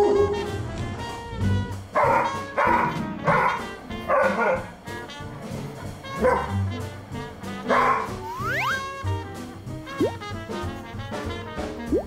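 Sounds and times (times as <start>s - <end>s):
background music: 0.0s - 12.0s
dog barking: 1.9s - 4.8s, 6.0s - 6.8s, 7.6s - 8.2s.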